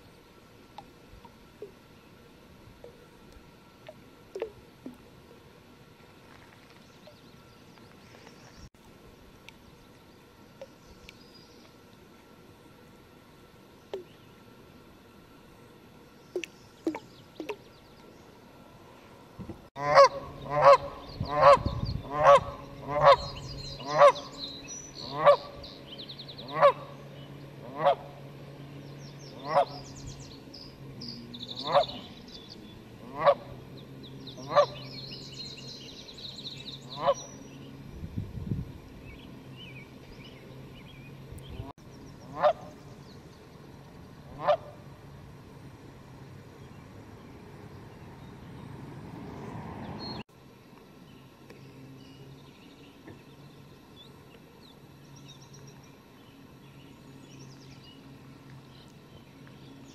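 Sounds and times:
goose honking: 19.8 - 24.3, 25.0 - 25.6, 26.4 - 27.0, 27.6 - 28.2, 29.4 - 29.8, 31.6 - 32.1, 33.0 - 33.5, 34.4 - 34.9, 36.9 - 37.3, 42.3 - 42.8, 44.3 - 44.8.

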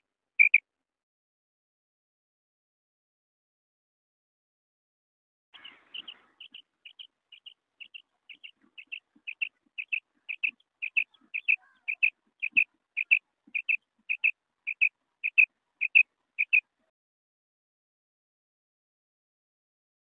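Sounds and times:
quail calling: 0.0 - 0.6, 5.6 - 16.7.

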